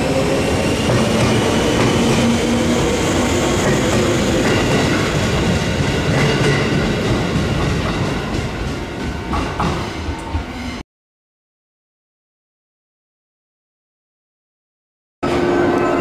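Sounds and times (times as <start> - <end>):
train wheels rumbling on rail: 0.0 - 10.8.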